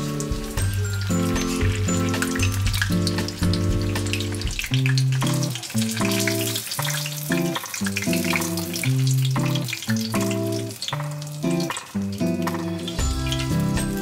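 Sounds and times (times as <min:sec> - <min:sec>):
background music with held chords: 0:00.0 - 0:05.4, 0:12.2 - 0:14.0
food sizzling in oil: 0:00.0 - 0:14.0.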